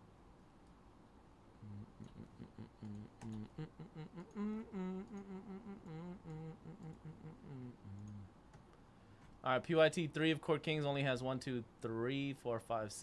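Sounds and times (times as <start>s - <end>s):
man humming: 1.6s - 8.3s.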